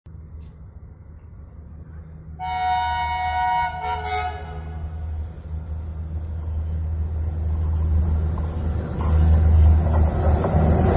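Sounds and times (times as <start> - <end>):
locomotive rumble: 0.1 - 10.9
diesel locomotive horn: 2.4 - 5.2.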